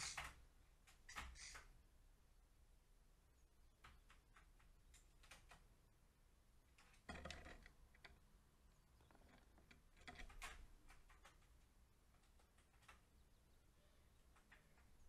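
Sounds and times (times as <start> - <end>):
faint ticks and taps: 3.8 - 5.7, 8.9 - 13.1, 14.2 - 15.0.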